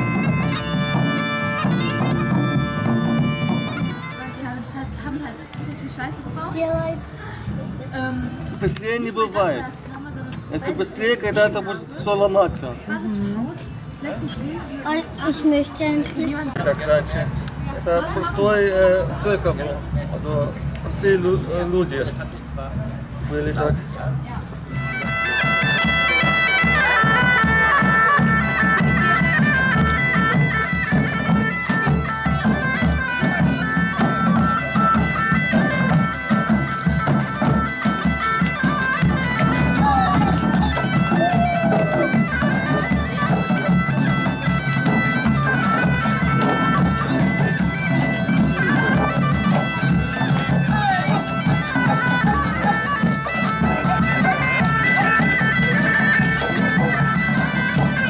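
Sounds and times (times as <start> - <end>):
bagpipes playing a melody: 0.0 - 4.8, 24.7 - 58.0
hand drums beating: 0.0 - 8.9, 23.7 - 58.0.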